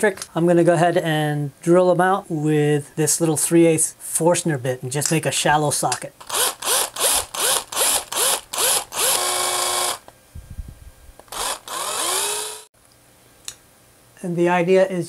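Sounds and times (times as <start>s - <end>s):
cordless drill boring into wood: 6.2s - 10.1s, 11.2s - 12.7s.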